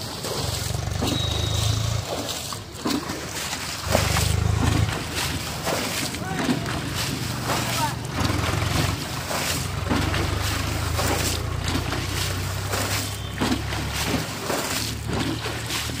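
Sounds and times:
muddy water sloshing and splashing: 0:00.0 - 0:16.0
steady low drone: 0:03.8 - 0:16.0.

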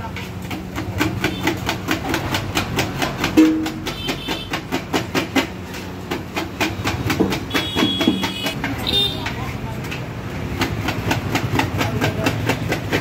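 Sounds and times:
metal spatulas clanging on griddle: 0:02.9 - 0:05.8.

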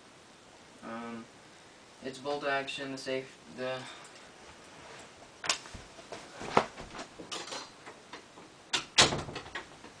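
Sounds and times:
person moving across room: 0:03.2 - 0:08.6
door closing with click: 0:08.8 - 0:09.7.

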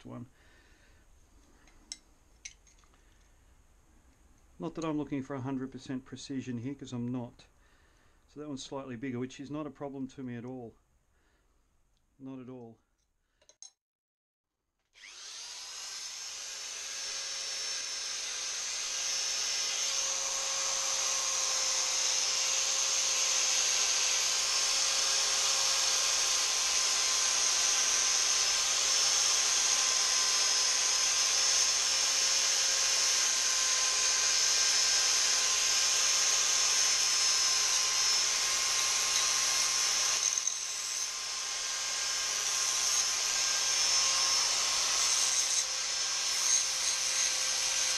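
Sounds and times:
power file whining: 0:15.0 - 0:47.9.

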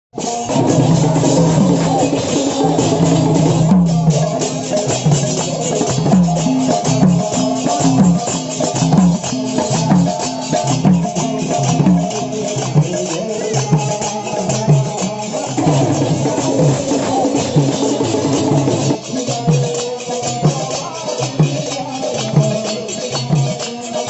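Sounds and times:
drum beating: 0:00.2 - 0:24.0.

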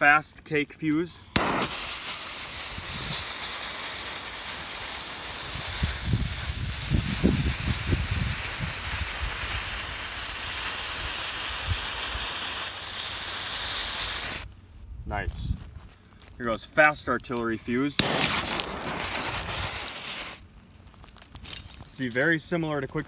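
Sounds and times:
fuse burning with hiss: 0:00.0 - 0:14.5, 0:16.8 - 0:20.5.

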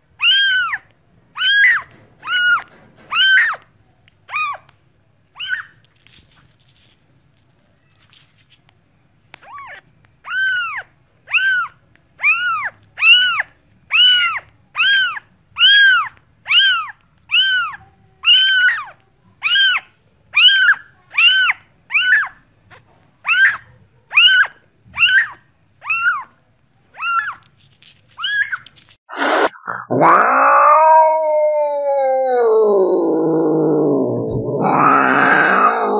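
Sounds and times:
cat meowing: 0:29.2 - 0:35.9.

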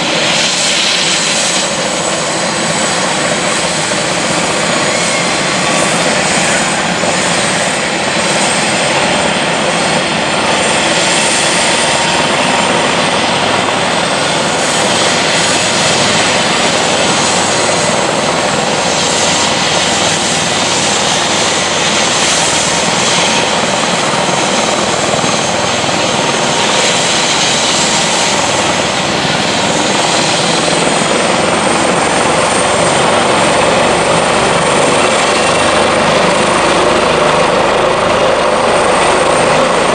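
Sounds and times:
helicopter rotor noise: 0:00.0 - 0:39.9
helicopter turbine whine: 0:00.0 - 0:39.9.

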